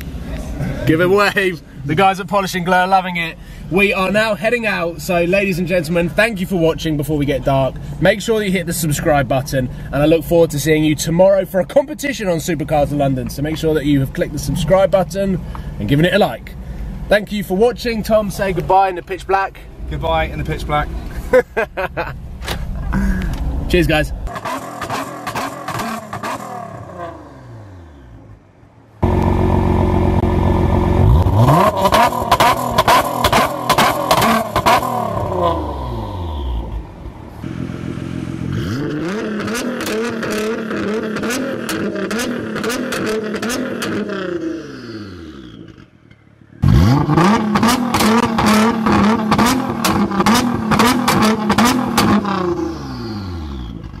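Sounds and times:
exhaust crackles: 0.0s - 54.0s
car engine revving: 22.7s - 54.0s.

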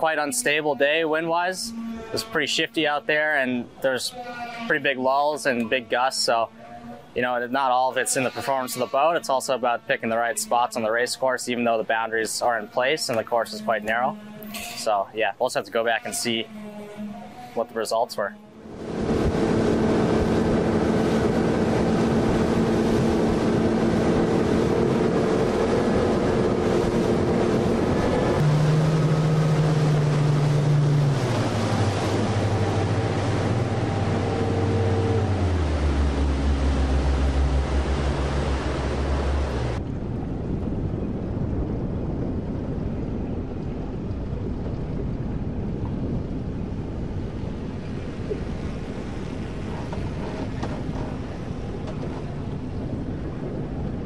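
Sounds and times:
motorboat engine drone: 0.0s - 54.0s
rushing water: 17.3s - 54.0s
wind buffeting microphone: 18.6s - 54.0s.

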